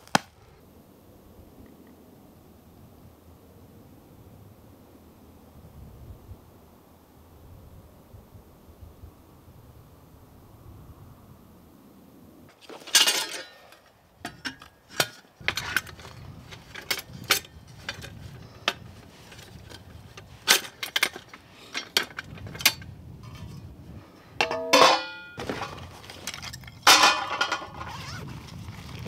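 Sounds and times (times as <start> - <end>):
hard objects clinking and knocking: 24.4 - 28.0
squeaky scrape: 27.6 - 29.0.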